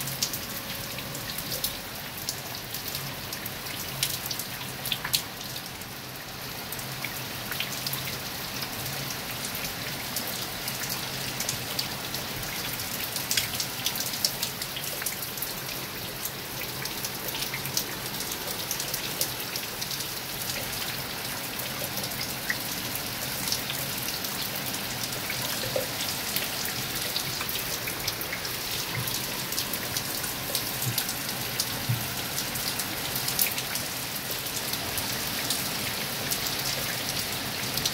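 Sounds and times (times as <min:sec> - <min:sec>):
raindrops ticking on hard surfaces: 0:00.0 - 0:37.9
heavy rain hiss: 0:22.4 - 0:36.6.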